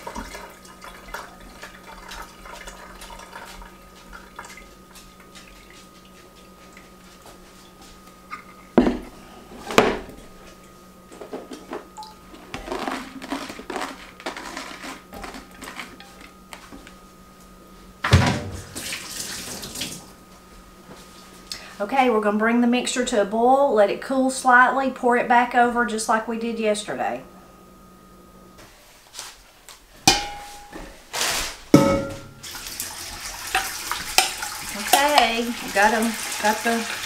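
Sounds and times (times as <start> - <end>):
glass jars and colander knocking: 30.1 - 30.8, 31.8 - 32.4
sink tap running: 31.8 - 37.0.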